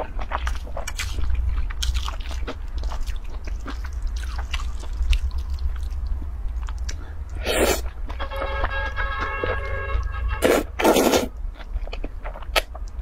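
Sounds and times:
chewing noodles: 0.0 - 8.0.

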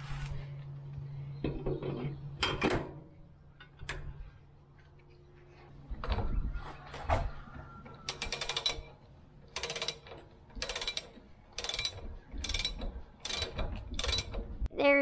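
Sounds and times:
ratchet wrench clicking: 8.1 - 8.9, 9.5 - 14.4.

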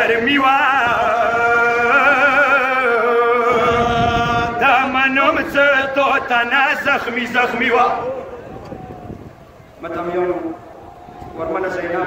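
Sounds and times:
man singing a lament: 0.0 - 8.0.

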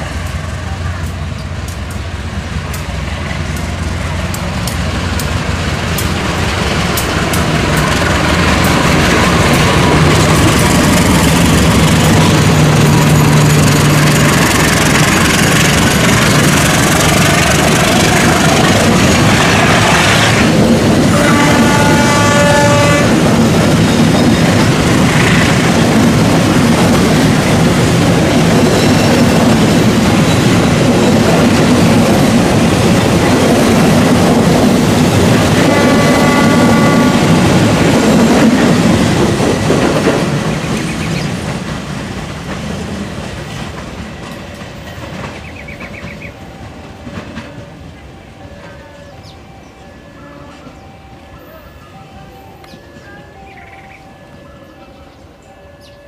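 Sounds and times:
train wheels rumbling on rails: 0.0 - 56.0
train horn: 21.0 - 23.4, 35.4 - 37.5, 48.6 - 54.0.

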